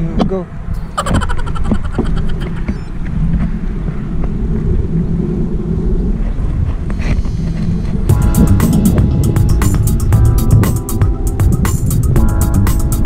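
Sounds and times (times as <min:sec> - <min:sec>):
wind buffeting microphone: 0:00.0 - 0:12.4
background music: 0:08.1 - 0:13.0.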